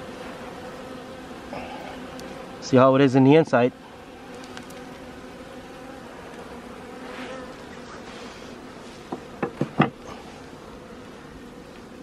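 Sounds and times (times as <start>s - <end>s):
bees buzzing: 0.0s - 12.0s
sharp knocks: 9.1s - 10.0s.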